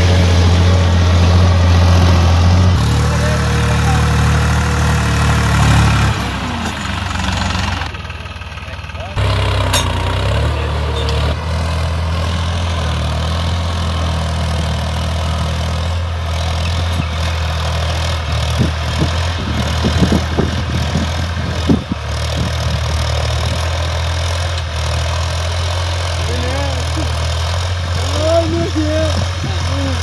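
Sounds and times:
tractor diesel engine running: 0:00.0 - 0:30.0.

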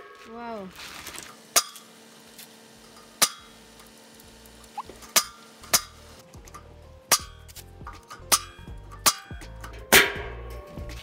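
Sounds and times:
nail gun firing: 0:01.5 - 0:01.9.

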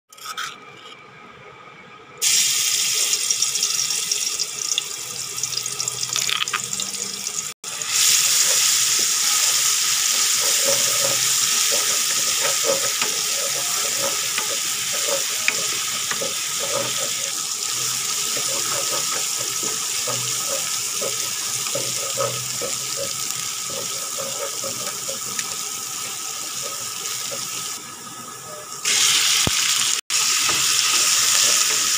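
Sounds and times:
spatula scraping a pan: 0:00.1 - 0:01.0, 0:08.0 - 0:27.8
paste sizzling in hot oil: 0:07.4 - 0:27.8, 0:28.8 - 0:31.9.

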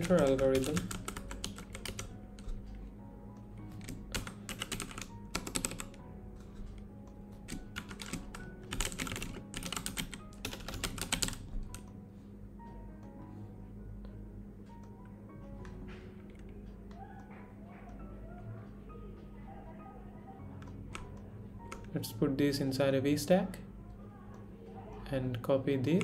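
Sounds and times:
keyboard typing: 0:00.0 - 0:02.9, 0:03.6 - 0:12.0, 0:20.4 - 0:22.0.

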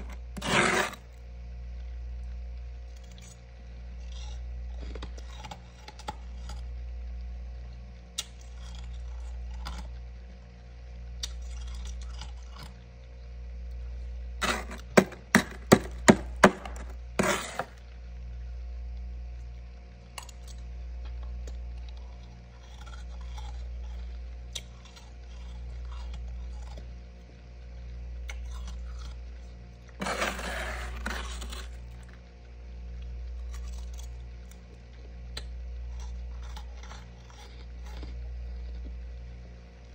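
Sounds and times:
metal spoon scraping frost: 0:00.0 - 0:01.2, 0:14.4 - 0:17.8, 0:30.0 - 0:32.2
low hum: 0:00.0 - 0:39.9.

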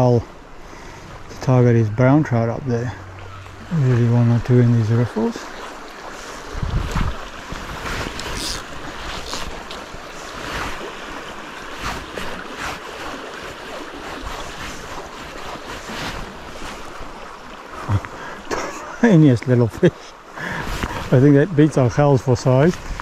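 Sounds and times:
stream running over gravel: 0:00.8 - 0:23.0
wind buffeting microphone: 0:01.0 - 0:12.5.

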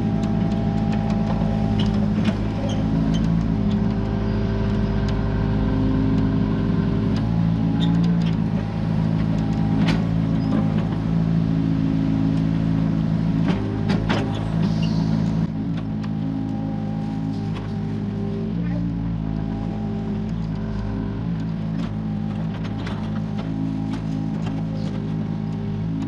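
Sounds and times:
excavator diesel engine running: 0:00.0 - 0:26.0.

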